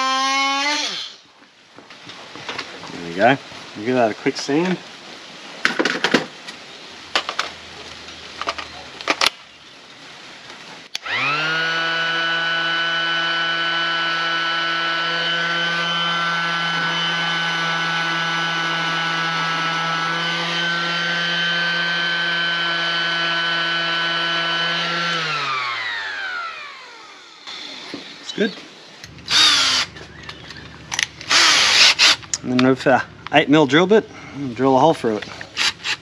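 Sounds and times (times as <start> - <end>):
orbital sander humming: 11.0 - 33.3, 35.4 - 36.0.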